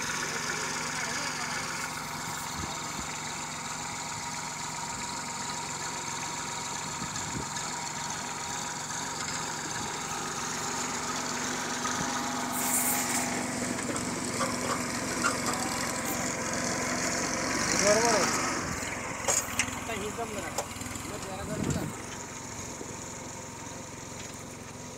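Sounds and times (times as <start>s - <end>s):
tractor diesel engine running: 0.0s - 24.9s
brief rush of noise: 12.5s - 13.5s.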